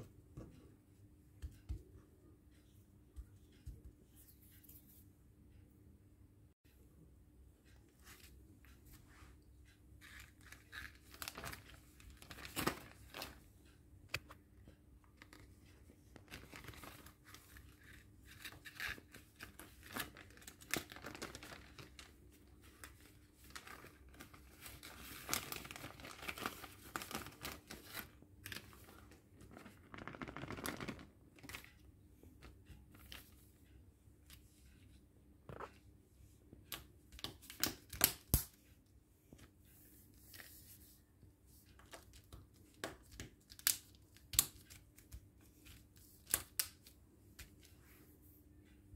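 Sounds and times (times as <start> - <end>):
plastic bag crinkling: 29.5 - 31.5.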